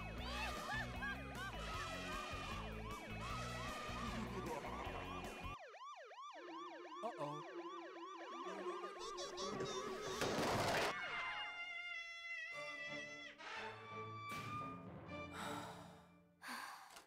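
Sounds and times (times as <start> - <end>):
background music: 0.0 - 5.6, 12.5 - 16.4
siren yelping: 0.1 - 10.5.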